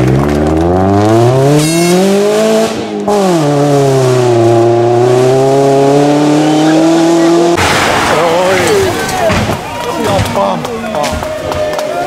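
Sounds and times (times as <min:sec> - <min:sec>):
rally car engine accelerating: 0:00.0 - 0:08.7.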